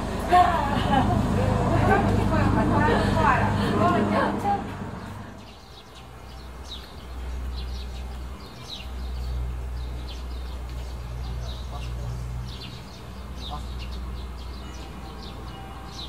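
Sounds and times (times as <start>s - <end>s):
steady low rumble: 0.0s - 14.4s
small birds twittering: 5.0s - 16.0s.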